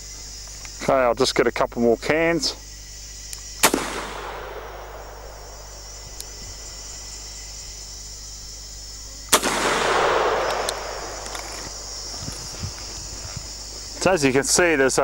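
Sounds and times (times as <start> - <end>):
rifle shot with rolling echo: 3.6 - 7.0, 9.3 - 12.4.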